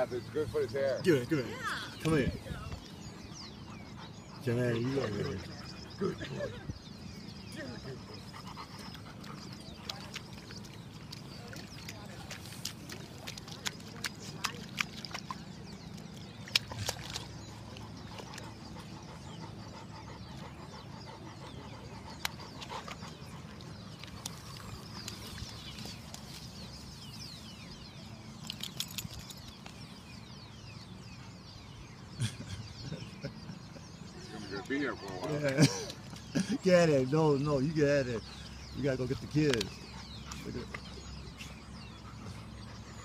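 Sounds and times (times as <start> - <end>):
puppy splashing in mud: 7.6 - 19.3, 21.9 - 26.6, 28.4 - 29.8.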